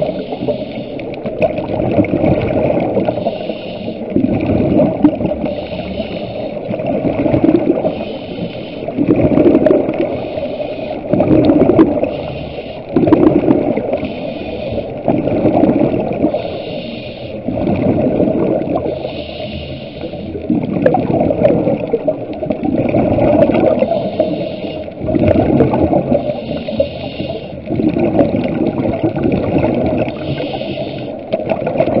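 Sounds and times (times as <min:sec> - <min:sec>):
regulator hiss on inhale: 0:00.0 - 0:01.3, 0:02.9 - 0:04.2, 0:05.3 - 0:06.8, 0:07.8 - 0:09.0, 0:09.9 - 0:11.2, 0:11.9 - 0:13.0, 0:13.7 - 0:15.1, 0:16.2 - 0:17.6, 0:18.6 - 0:20.5, 0:23.6 - 0:25.1, 0:25.9 - 0:27.8, 0:30.0 - 0:31.4
exhaled bubbles gurgling: 0:00.0 - 0:32.0.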